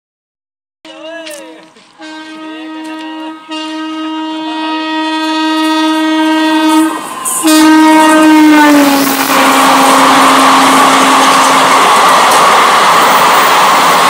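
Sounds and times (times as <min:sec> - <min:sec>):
locomotive air horn blasts: 0:02.0 - 0:11.7.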